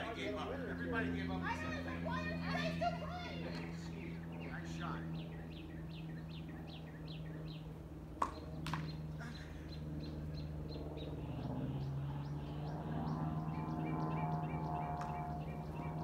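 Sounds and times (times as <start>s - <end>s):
steady low hum: 0.0s - 16.0s
bird chirping: 4.0s - 7.7s, 8.3s - 16.0s.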